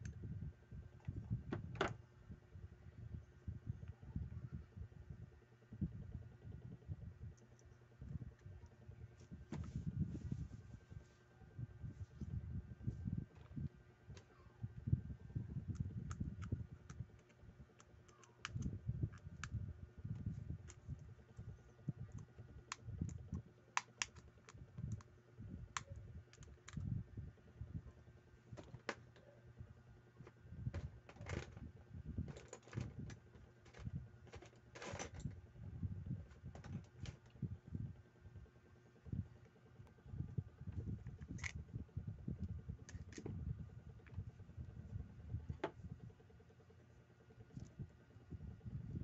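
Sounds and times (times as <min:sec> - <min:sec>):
soft handling bumps: 0:09.2 - 0:13.6.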